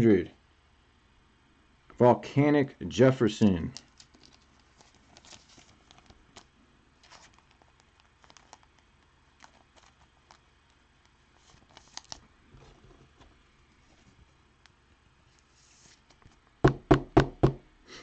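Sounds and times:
trading cards and plastic sleeves rustling: 3.5s - 16.6s.

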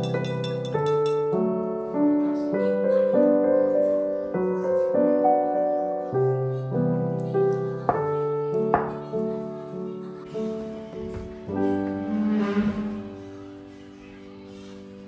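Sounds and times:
spoon clinking against glass: 0.0s - 1.4s
solo piano music: 0.0s - 15.0s.

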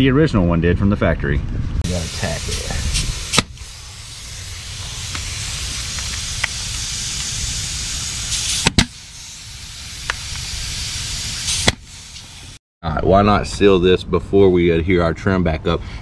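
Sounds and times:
steady hiss: 1.8s - 12.6s
puff of air: 1.9s - 12.6s
pneumatic stapler shots: 2.9s - 12.6s.

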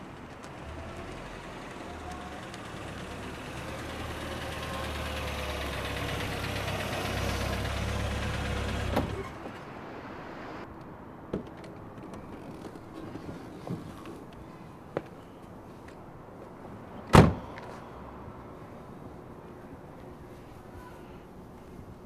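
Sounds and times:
car engine running: 0.1s - 9.4s.

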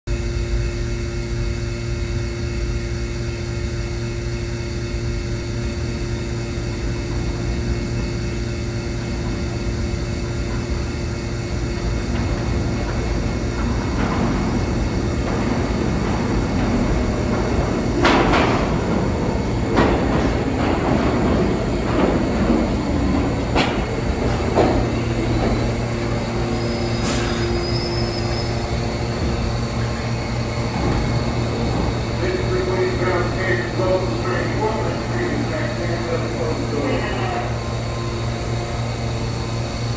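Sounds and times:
train low rumble: 0.1s - 39.9s
train wheel clanks and clatter: 4.0s - 39.9s
brake squeal: 26.6s - 28.6s.

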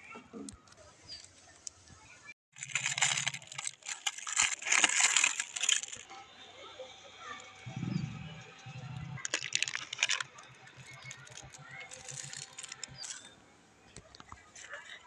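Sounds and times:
cellophane crinkling and tearing: 2.5s - 6.1s, 9.2s - 13.3s.

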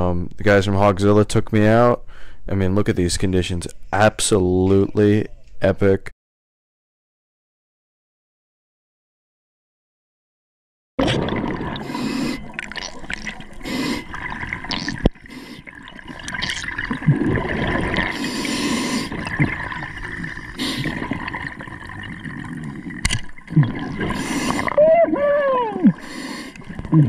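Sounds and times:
water rushing and bubbling underwater: 11.0s - 27.0s.

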